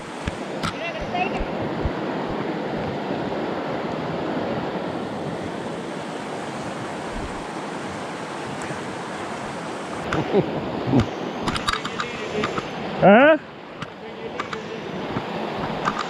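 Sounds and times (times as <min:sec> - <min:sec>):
creek water rushing over rocks: 0:00.0 - 0:16.0
short clicks and knocks: 0:13.8 - 0:16.0.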